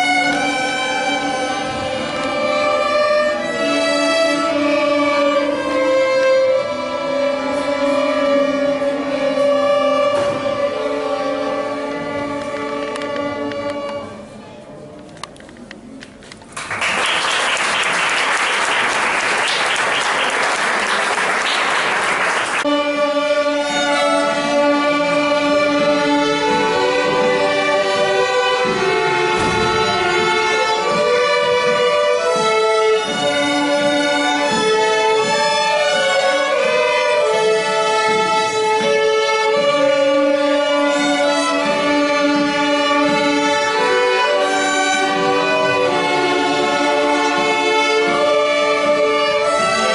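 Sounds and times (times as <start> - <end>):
string orchestra playing: 0.0 - 15.9, 16.7 - 49.9
audience applause: 16.5 - 22.6.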